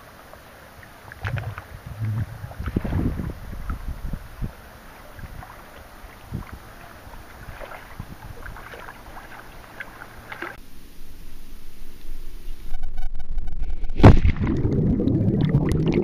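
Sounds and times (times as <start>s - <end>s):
underwater rumbling hiss: 0.0s - 8.5s.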